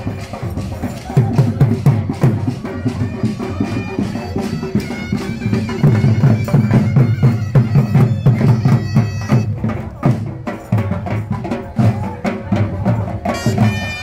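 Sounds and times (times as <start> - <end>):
wind instrument high notes: 0.0 - 10.2, 13.1 - 14.0
fast drum beat: 0.0 - 14.0.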